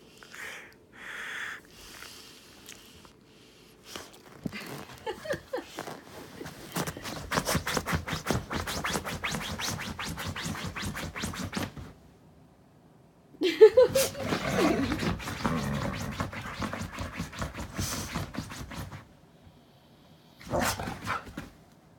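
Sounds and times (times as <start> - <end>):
dog scrabbling and rustling: 3.9 - 12.0, 13.9 - 19.1, 20.4 - 21.6
dog scratching fabric bed: 6.5 - 11.9, 14.3 - 19.1.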